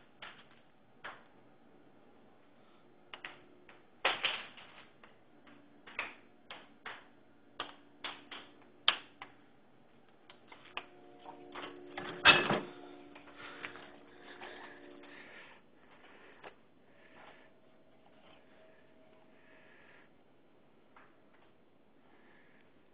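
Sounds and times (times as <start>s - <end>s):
clicks and knocks: 10.2s - 15.1s
footsteps: 10.4s - 18.7s.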